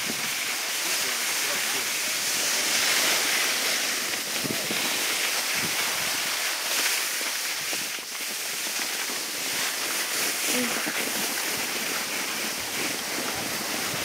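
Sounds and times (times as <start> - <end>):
wind on microphone: 0.0 - 0.6, 1.8 - 14.0
skis scraping over snow: 0.0 - 14.0.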